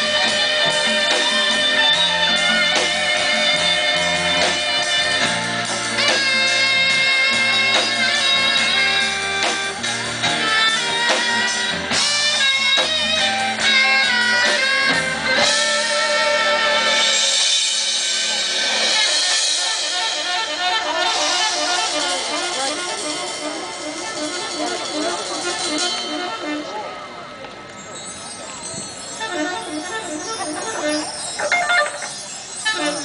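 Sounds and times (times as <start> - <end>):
electric guitar lead: 0.0 - 19.5
bass line: 0.0 - 26.9
live rock and roll band: 0.0 - 27.2, 28.6 - 33.0.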